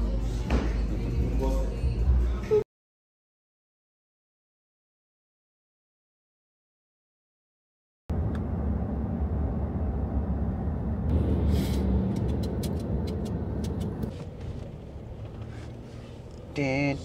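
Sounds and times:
car road and engine rumble: 0:08.1 - 0:17.0
truck passing alongside: 0:08.1 - 0:17.0.

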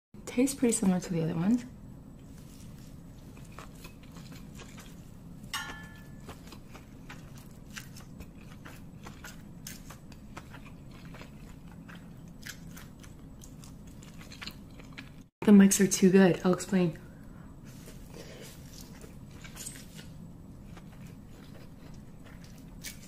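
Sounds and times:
low background hum: 0:00.2 - 0:23.0.

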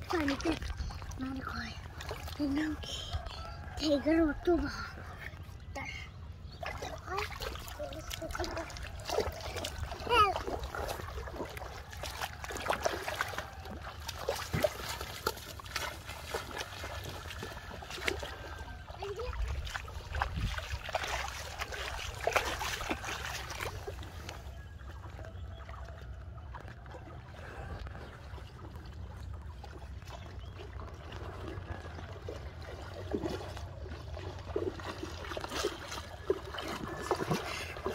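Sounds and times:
river water splashing: 0:00.0 - 0:37.9.

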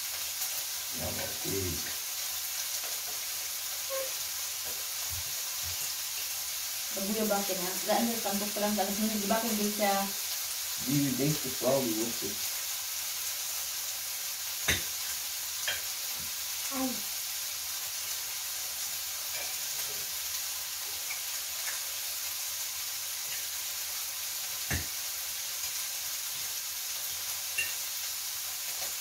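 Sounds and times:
steady hiss: 0:00.0 - 0:29.0
cutlery clinking on plates: 0:27.6 - 0:27.8.

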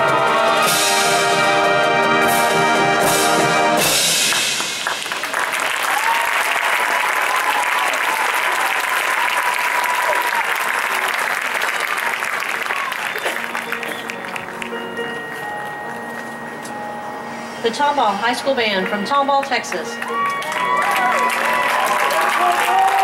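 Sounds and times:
marching band brass chord: 0:00.0 - 0:05.3
crowd applauding and cheering: 0:04.0 - 0:15.8, 0:19.8 - 0:23.0.

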